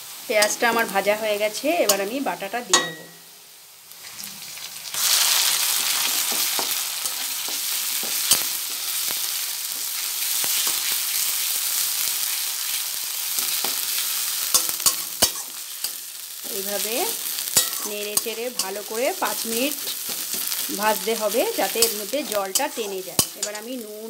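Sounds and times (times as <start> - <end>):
paste sizzling in hot oil: 0.0 - 24.0
metal spatula scraping wok: 4.0 - 11.3, 13.4 - 23.8.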